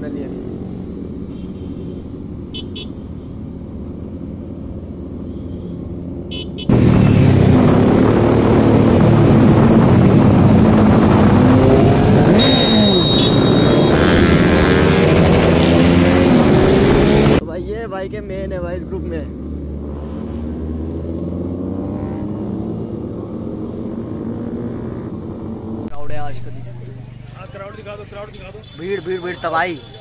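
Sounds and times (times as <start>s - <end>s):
motorcycle engines revving: 0.0s - 30.0s
short high beeps: 12.3s - 14.0s.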